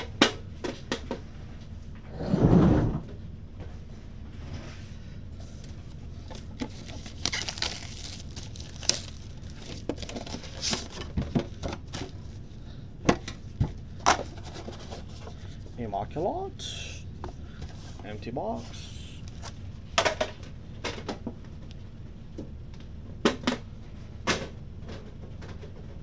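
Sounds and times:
cardboard box clicks and scraping: 6.3 - 11.2.

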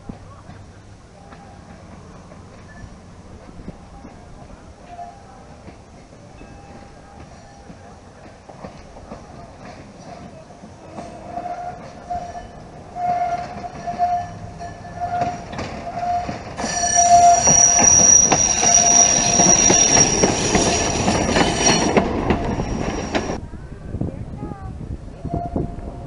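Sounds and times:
train wheels rolling on track: 0.0 - 23.4
high-pitched wheel squeal: 11.0 - 23.4
pulsing mid-pitched tone: 16.6 - 23.4.

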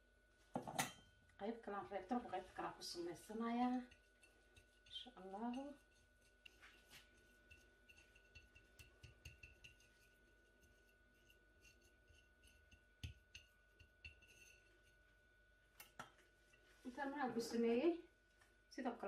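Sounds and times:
metal spatula scraping and tapping: 0.6 - 1.1, 3.2 - 15.2.

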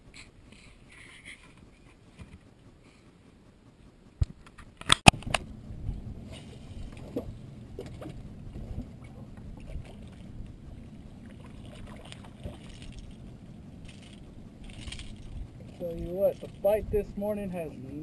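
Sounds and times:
low rumble of water and wind: 0.0 - 18.0.

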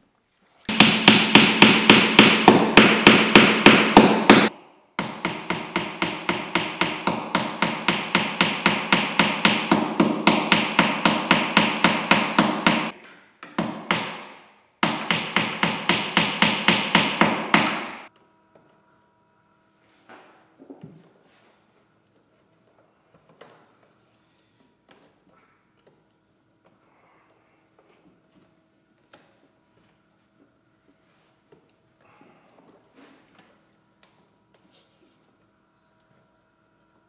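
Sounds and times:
hammer tapping on wood: 0.7 - 14.2, 14.8 - 18.1.

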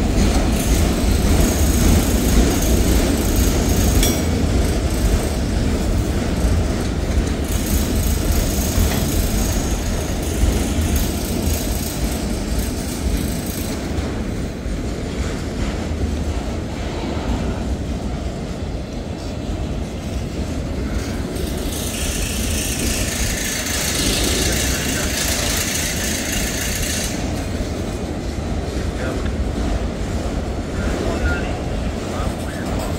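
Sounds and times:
train wheels rumbling on rail: 0.0 - 32.9
hiss: 21.0 - 27.3.

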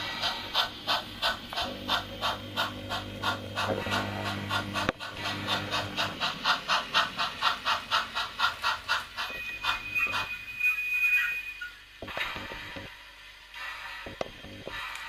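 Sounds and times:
model train steam chuffs: 0.0 - 15.0
steady whistle tone: 9.2 - 12.0.

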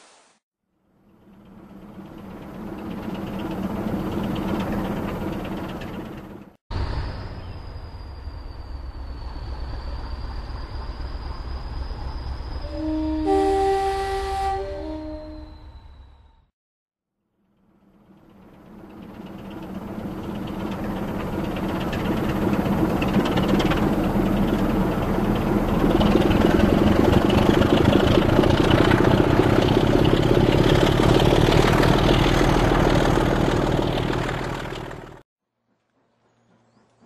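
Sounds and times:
steam locomotive running: 1.0 - 6.5, 17.8 - 37.0.

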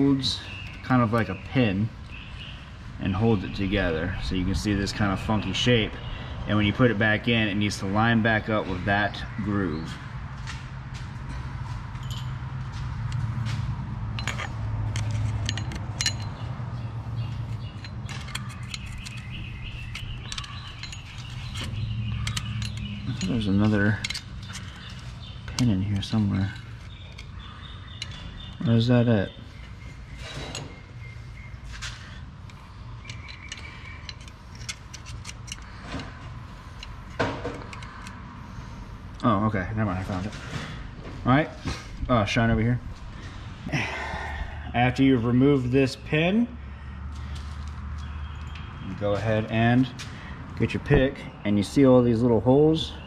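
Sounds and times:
low hum: 10.0 - 28.5
metal clatter: 14.1 - 16.5, 17.4 - 27.0
metal pick clicking in hub: 17.5 - 28.6, 32.4 - 36.2, 36.8 - 38.2.

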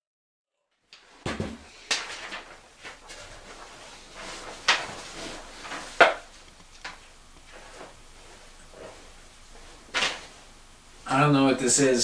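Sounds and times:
rustling: 1.8 - 10.6.

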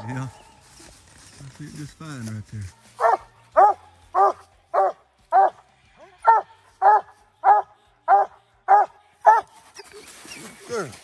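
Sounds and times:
hound barking: 3.0 - 9.6.

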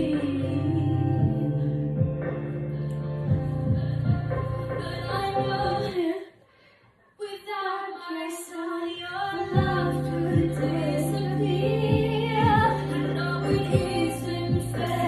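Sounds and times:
bass line with beat: 0.0 - 5.9, 9.6 - 15.0
girl singing pop song: 0.0 - 15.0.

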